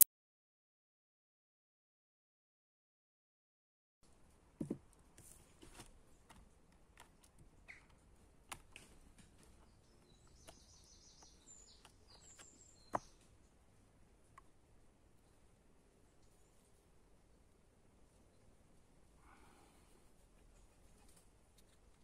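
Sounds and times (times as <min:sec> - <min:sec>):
small bird chirping: 0:07.6 - 0:08.0, 0:09.4 - 0:13.6.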